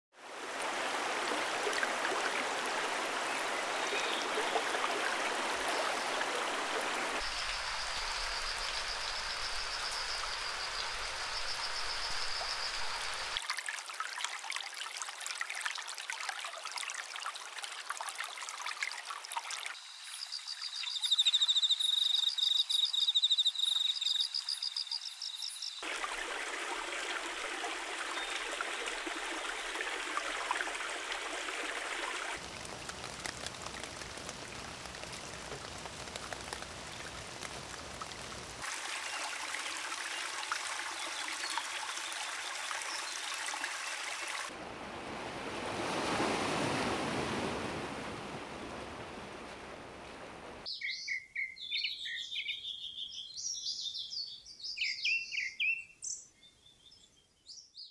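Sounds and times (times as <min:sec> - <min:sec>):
running water rushing: 0:00.1 - 0:20.9, 0:25.8 - 0:50.7
birds chirping: 0:20.0 - 0:25.8.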